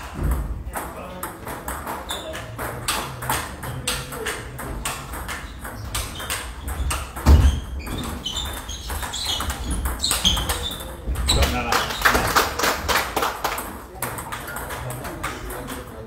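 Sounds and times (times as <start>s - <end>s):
table tennis balls clicking: 0.0s - 16.0s.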